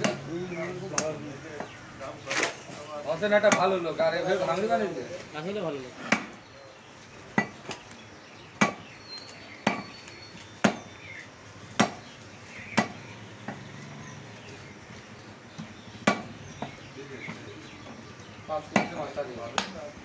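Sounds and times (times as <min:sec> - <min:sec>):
cleaver chopping on wooden block: 0:08.6 - 0:08.9, 0:09.6 - 0:10.0, 0:10.6 - 0:10.9, 0:11.8 - 0:12.1, 0:12.7 - 0:13.6, 0:15.6 - 0:17.4, 0:18.7 - 0:19.8.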